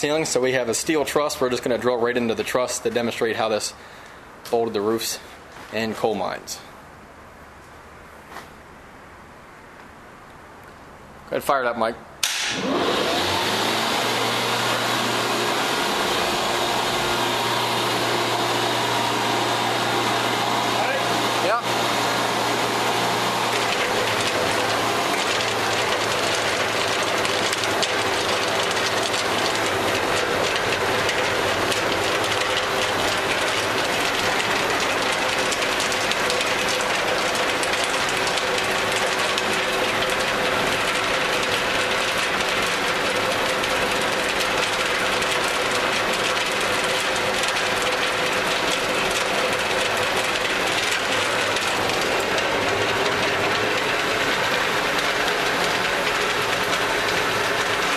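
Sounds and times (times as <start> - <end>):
drill steel clattering: 12.2 - 57.9
machine motor running: 12.4 - 57.9.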